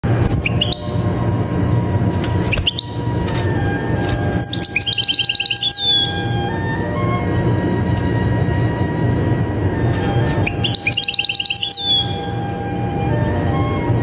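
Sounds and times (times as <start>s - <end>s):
goldfinch singing: 0.4s - 1.2s, 2.3s - 6.4s, 9.9s - 12.6s
background music: 0.6s - 14.0s.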